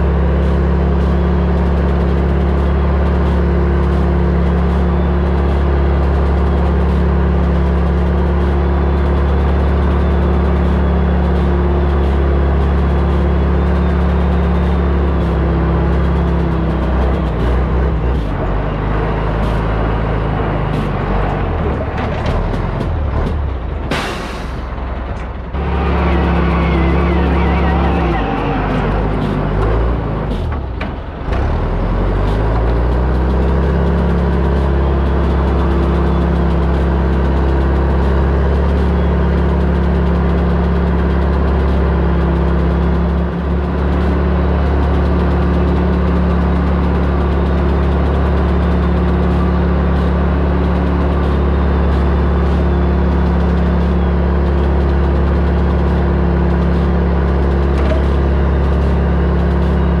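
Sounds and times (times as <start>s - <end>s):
diesel engine running steadily: 0.0s - 60.0s.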